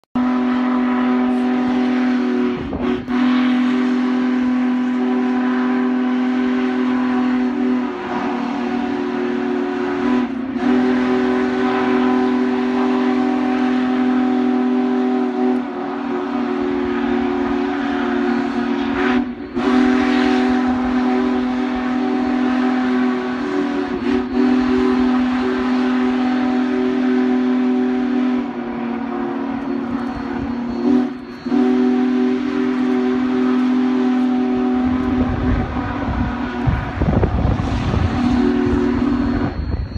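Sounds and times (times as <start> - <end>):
steam locomotive whistle blasts: 0.2 - 39.9.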